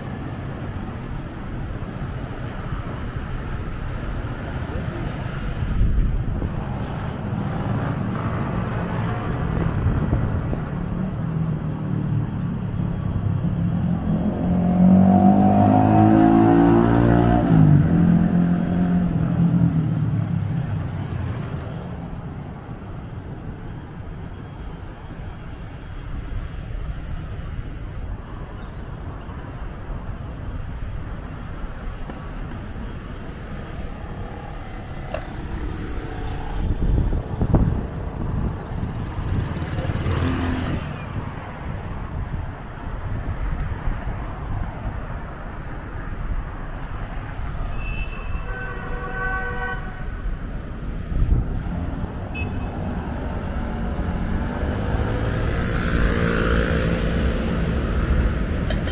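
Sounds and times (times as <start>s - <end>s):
road traffic rumbling: 0.0s - 58.9s.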